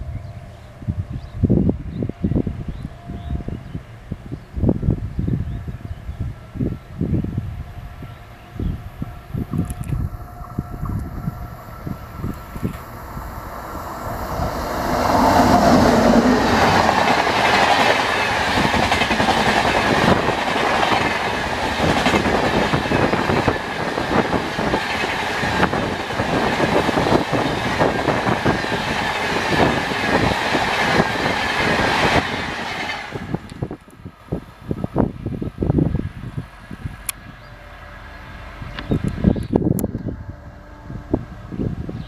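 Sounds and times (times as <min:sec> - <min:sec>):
train passing at high speed: 0:00.0 - 0:42.0
train wheels clattering over rail joints: 0:16.6 - 0:33.6.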